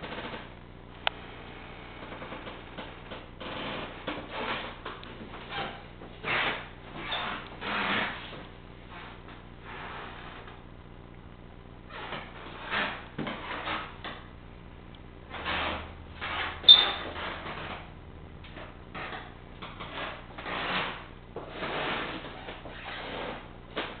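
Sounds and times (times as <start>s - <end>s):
rubbing rustling scrapes: 3.5s - 10.6s, 15.3s - 17.9s, 18.6s - 24.0s.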